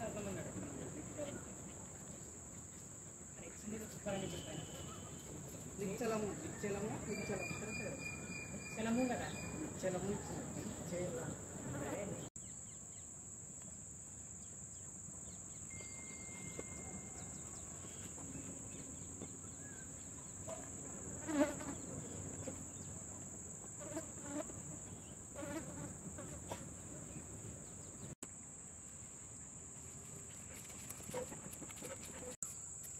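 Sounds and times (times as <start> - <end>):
high-pitched insect drone: 15.6 - 18.1.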